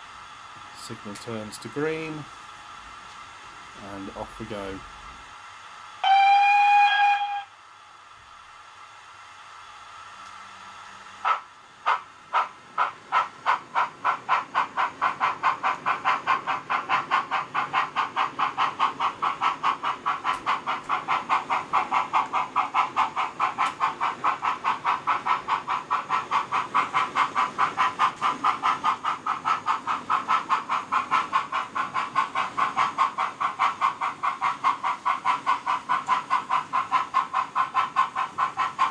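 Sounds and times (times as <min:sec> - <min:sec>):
steam locomotive exhaust chuffs: 0:00.0 - 0:38.9
model train whistle: 0:06.0 - 0:07.6.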